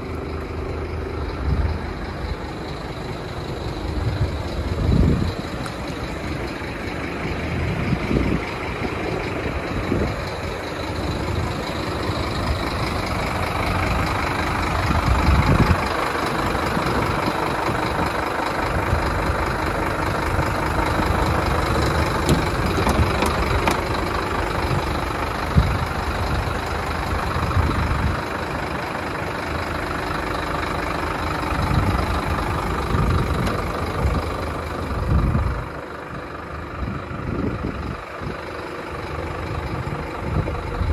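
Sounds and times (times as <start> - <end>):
uneven low rumbles: 0.0 - 29.6
diesel truck engine idling: 0.0 - 40.9.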